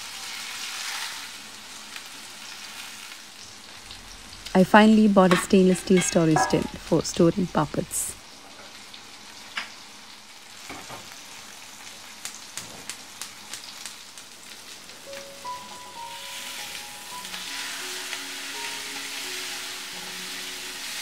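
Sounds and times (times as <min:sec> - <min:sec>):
fish sizzling in oil: 0:00.0 - 0:21.0
soft music with held notes: 0:15.0 - 0:21.0.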